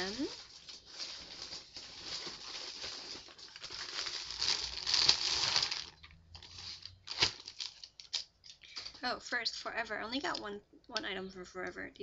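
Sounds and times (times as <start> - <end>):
shopping bags rustling: 0.0 - 8.3.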